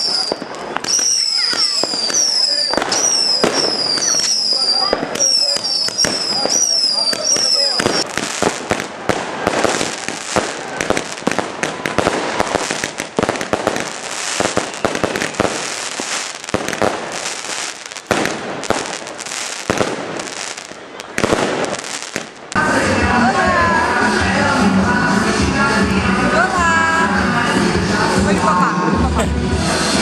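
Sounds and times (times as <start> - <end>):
firework bangs: 0.0 - 23.5
fireworks crackling: 0.0 - 30.0
music: 22.6 - 30.0.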